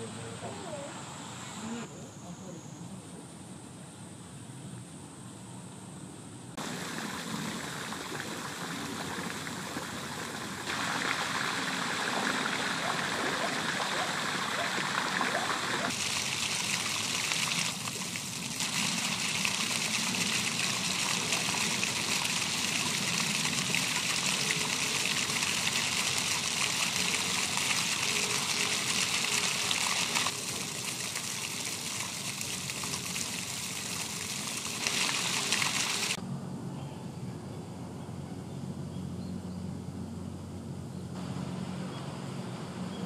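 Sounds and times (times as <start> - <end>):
running water rushing: 6.6 - 36.2.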